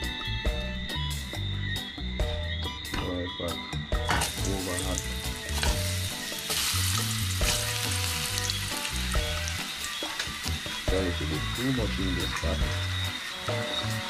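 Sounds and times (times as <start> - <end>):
slices sizzling in hot oil: 4.0 - 14.0.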